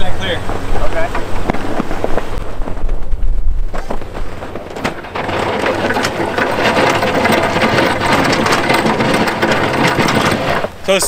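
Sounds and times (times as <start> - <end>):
snowplow blade scraping snow: 3.8 - 10.8.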